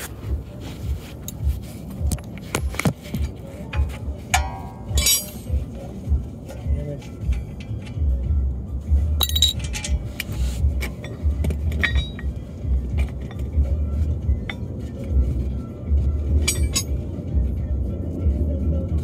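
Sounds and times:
metal tools clinking: 3.7s - 5.7s, 9.2s - 13.7s, 16.4s - 17.0s.

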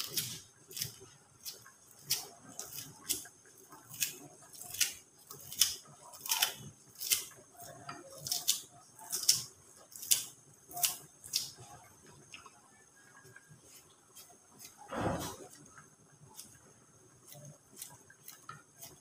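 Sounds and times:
scissors snipping leaves: 0.0s - 3.2s, 3.9s - 7.3s, 8.2s - 11.6s.

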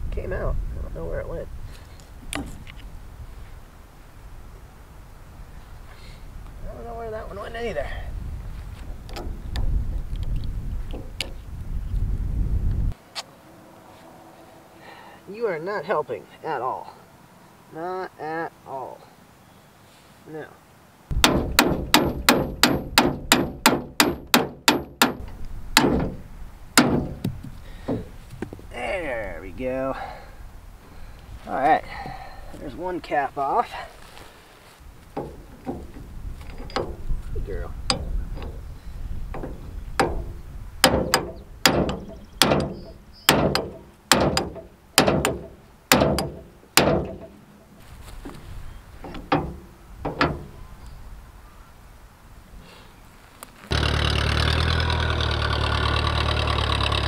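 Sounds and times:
hammer striking steel: 21.2s - 26.2s, 40.0s - 47.4s.

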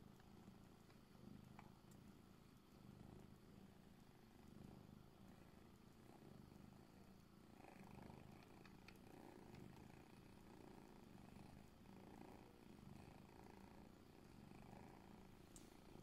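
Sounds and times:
cat purring: 0.0s - 16.0s
faint clicks: 0.2s - 2.1s, 8.4s - 9.7s, 15.5s - 15.8s.

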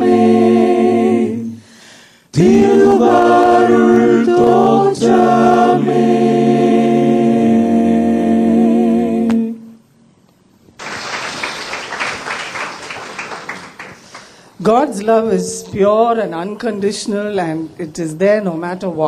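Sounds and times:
a cappella choir holding a chord: 0.0s - 9.8s
audience applause: 10.8s - 14.4s.

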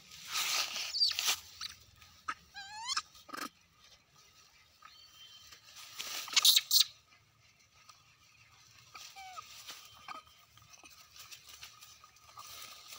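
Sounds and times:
crunching rustling noise: 0.0s - 2.5s, 5.3s - 6.7s, 7.4s - 12.9s.

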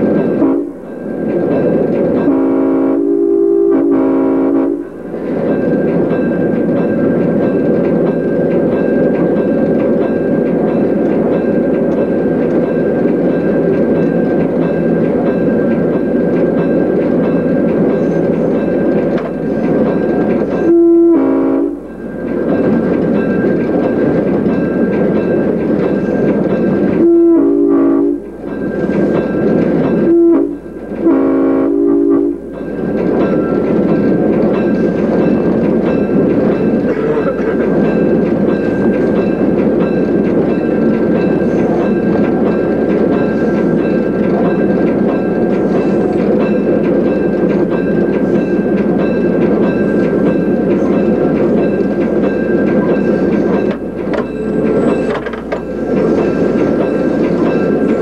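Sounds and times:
train running on rails: 0.0s - 58.0s
locomotive horn: 0.4s - 0.8s, 2.2s - 4.8s, 20.6s - 21.8s, 27.0s - 28.2s, 30.0s - 32.4s.

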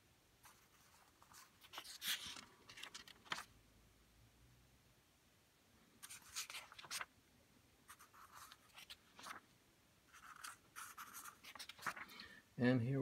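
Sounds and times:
paper pages being turned: 0.5s - 3.5s, 6.0s - 7.1s, 7.9s - 9.4s, 10.1s - 12.1s.

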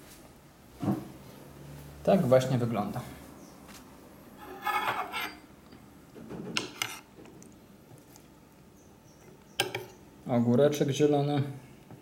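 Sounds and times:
spoon scraping on plate: 4.4s - 5.5s, 6.6s - 7.1s.

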